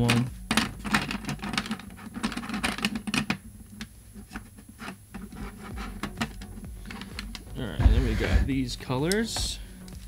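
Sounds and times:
markers clicking and tapping: 0:00.0 - 0:07.5
markers rubbing: 0:04.1 - 0:08.5.

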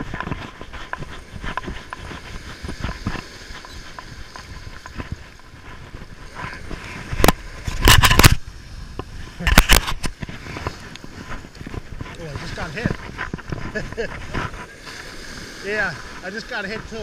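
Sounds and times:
faint surf: 0:00.0 - 0:17.0.

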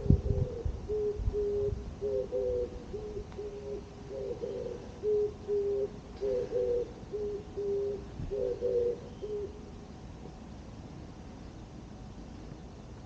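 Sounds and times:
dove cooing: 0:00.0 - 0:09.8.

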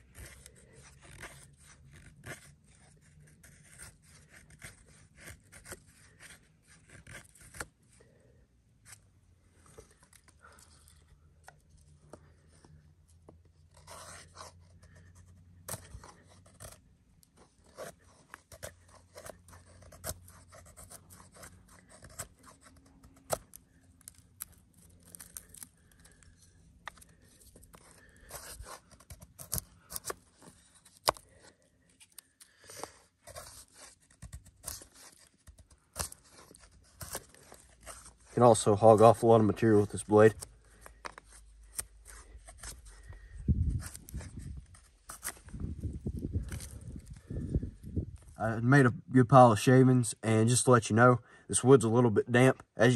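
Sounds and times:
knife scraping wood: 0:00.1 - 0:08.2, 0:13.6 - 0:48.3.

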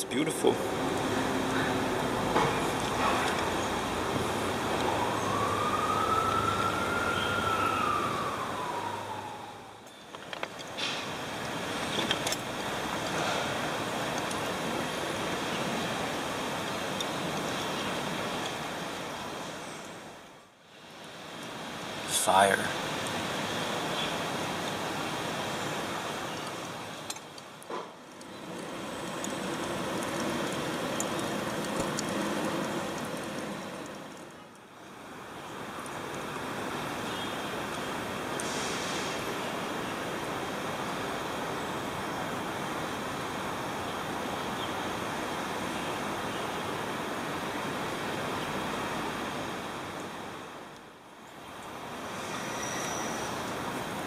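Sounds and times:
charcoal fire crackling: 0:00.0 - 0:43.7
steady background hiss: 0:00.0 - 0:54.0
siren wailing: 0:00.7 - 0:09.9.

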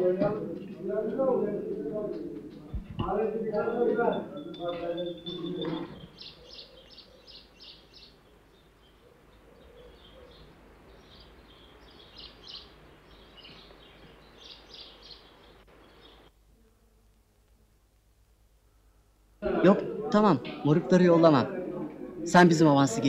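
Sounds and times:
small birds chirping: 0:00.0 - 0:16.4
faint outdoor background: 0:00.0 - 0:23.0.

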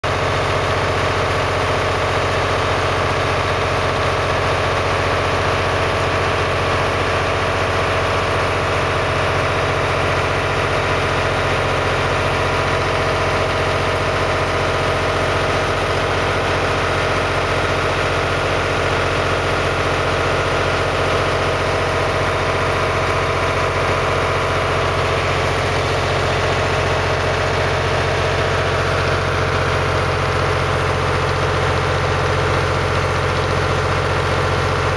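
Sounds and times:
boat engine humming: 0:00.0 - 0:34.9.

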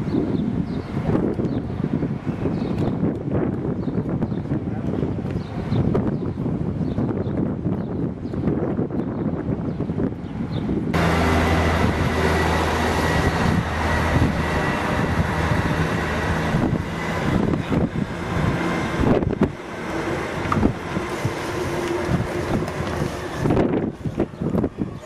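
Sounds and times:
diesel train engine drone: 0:00.0 - 0:25.0.

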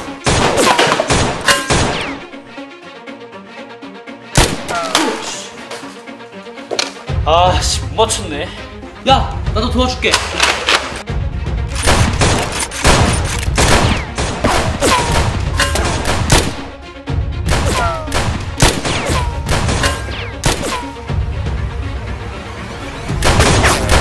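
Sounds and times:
background music: 0:00.0 - 0:24.0
rapid gunfire: 0:11.9 - 0:16.6, 0:17.5 - 0:19.8, 0:23.2 - 0:24.0.

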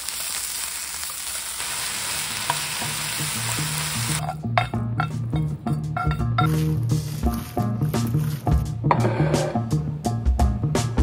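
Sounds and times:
vegetables sizzling in frying pan: 0:00.0 - 0:04.3.

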